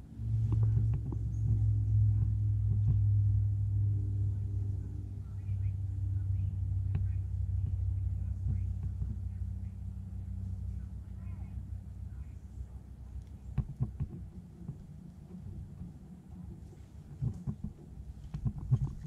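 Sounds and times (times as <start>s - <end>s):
low engine drone: 0.0s - 19.0s
light clicks and taps: 6.8s - 9.4s, 12.9s - 19.0s.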